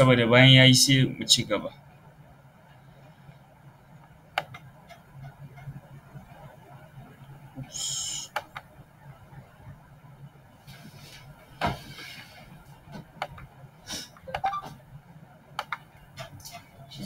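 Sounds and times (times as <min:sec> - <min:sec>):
steady low hum: 0:00.0 - 0:17.0
scattered clicks and knocks: 0:04.4 - 0:06.4, 0:15.6 - 0:16.7.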